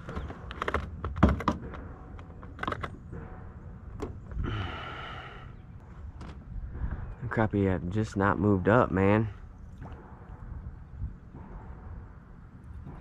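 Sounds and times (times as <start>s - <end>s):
clicks and knocks in boat: 0.0s - 3.2s.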